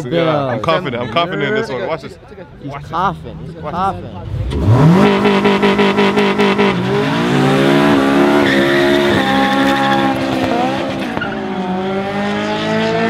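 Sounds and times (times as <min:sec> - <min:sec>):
car engine revving hard: 0:04.2 - 0:13.0
tyres squealing on asphalt: 0:04.3 - 0:11.8.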